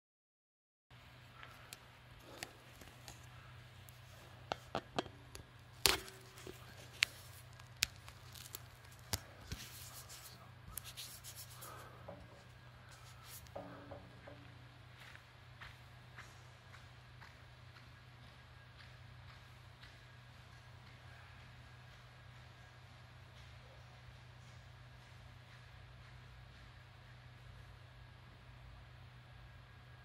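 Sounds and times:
steady low hum: 0.9s - 30.0s
rubbing and rustling: 6.0s - 13.6s.

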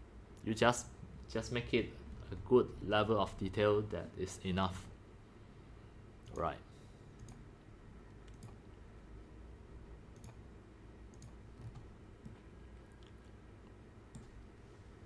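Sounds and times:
low room hum: 0.0s - 15.0s
computer mouse clicks: 7.2s - 7.4s, 8.1s - 8.7s, 10.1s - 10.4s, 11.1s - 12.4s, 13.0s - 14.4s.

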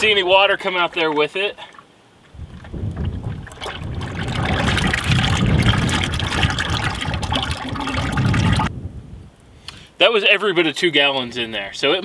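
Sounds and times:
oil draining into a bucket: 0.0s - 8.7s
wind buffeting microphone: 2.2s - 9.6s.

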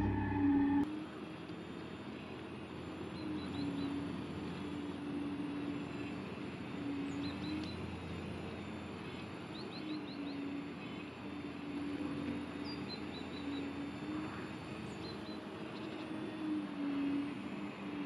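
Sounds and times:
hydraulic pump whining: 0.0s - 0.8s
small birds chirping: 2.8s - 16.2s.

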